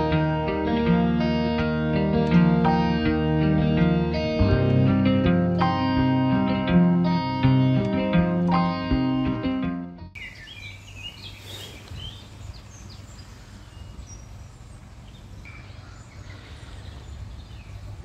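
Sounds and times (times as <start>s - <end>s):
guitar music: 0.0s - 10.2s
songbird chirps: 10.1s - 18.0s.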